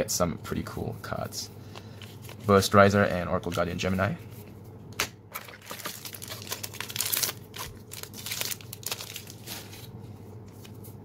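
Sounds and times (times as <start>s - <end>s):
cards sliding with papery rustle: 1.8s - 2.7s, 5.6s - 11.0s.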